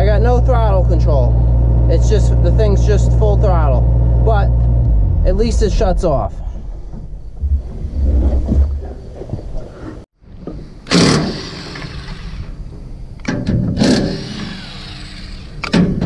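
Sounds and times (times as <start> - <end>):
diesel engine at full throttle: 0.0 - 7.6
loud rushing bursts: 4.9 - 8.9.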